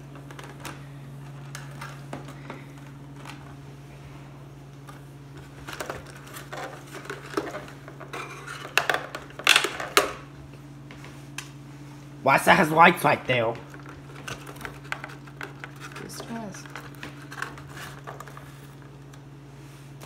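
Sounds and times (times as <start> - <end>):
steady low hum: 0.0 - 20.0
cardboard rustling: 14.2 - 19.1.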